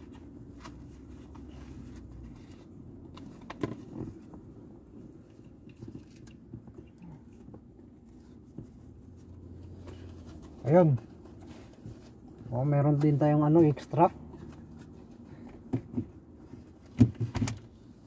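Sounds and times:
mask rustling: 0.0 - 17.0
car interior hum: 0.0 - 18.0.

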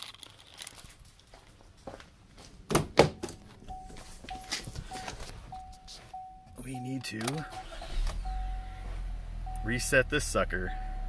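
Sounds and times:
car warning chime beeping: 3.4 - 11.0.

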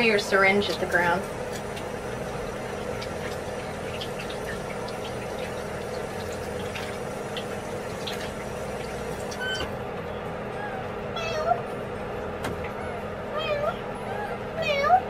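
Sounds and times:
tap water running into sink: 0.2 - 9.7.

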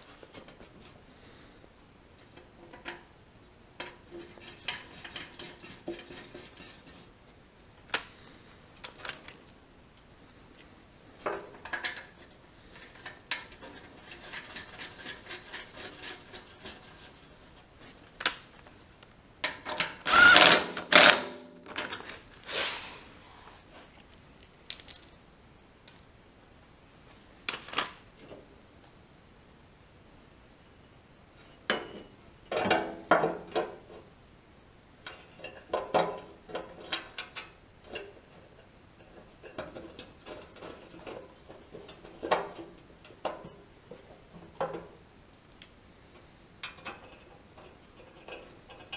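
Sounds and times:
bolts and hardware clinking: 11.2 - 17.1.

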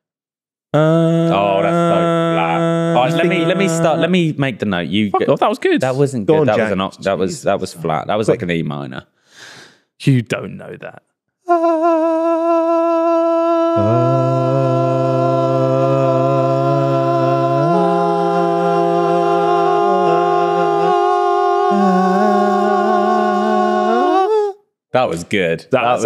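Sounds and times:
men singing a cappella: 0.8 - 4.2, 11.5 - 24.6.

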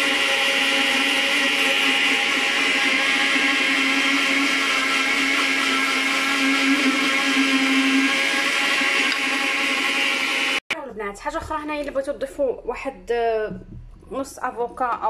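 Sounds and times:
blender whirring: 0.0 - 10.6.

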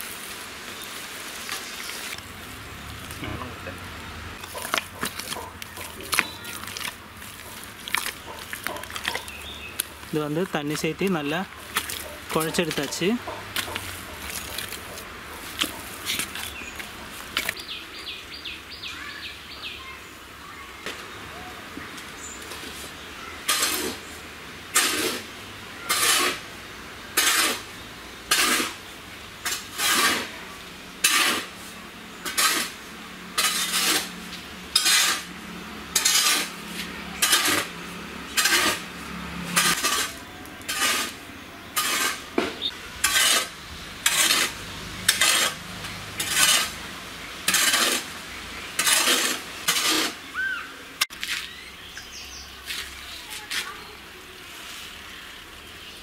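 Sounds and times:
metal tool scraping wet mud: 4.4 - 17.6, 23.5 - 24.1, 24.7 - 25.3, 25.9 - 26.4, 27.2 - 27.6, 28.3 - 28.8, 29.4 - 30.4, 31.0 - 35.3, 35.9 - 50.3.

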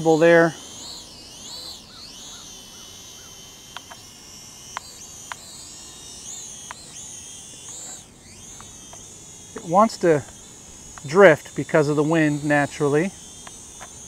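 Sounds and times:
drone motors buzzing whine: 0.0 - 14.0
faint ticks: 10.2 - 11.2, 13.4 - 14.0.

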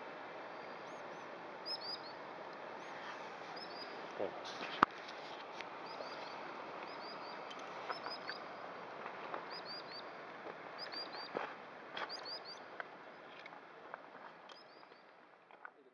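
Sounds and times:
small bird chirping: 0.5 - 4.4, 5.7 - 8.8, 9.4 - 13.6, 14.3 - 15.2.

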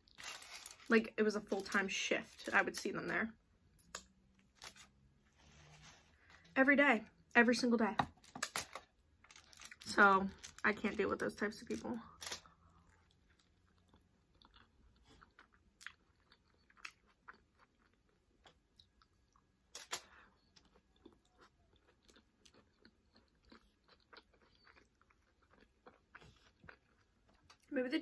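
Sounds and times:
chewing crunchy food: 12.0 - 27.7.

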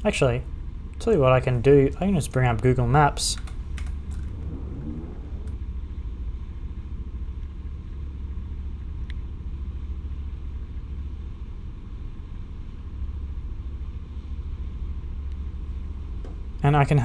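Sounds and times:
wind noise: 0.0 - 5.8
ferry rumble: 0.0 - 6.0.

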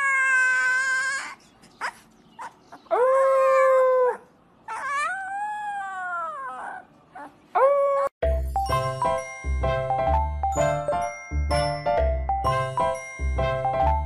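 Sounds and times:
puppy howling: 2.8 - 8.1.

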